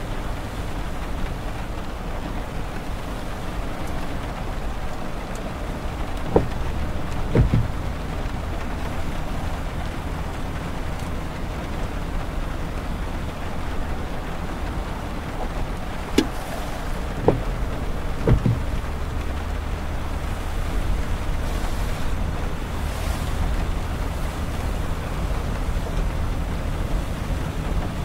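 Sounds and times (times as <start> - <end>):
car road and tyre noise: 0.0 - 28.0
light rain on windshield: 0.0 - 28.0
short sharp taps: 17.2 - 17.5, 18.2 - 18.7.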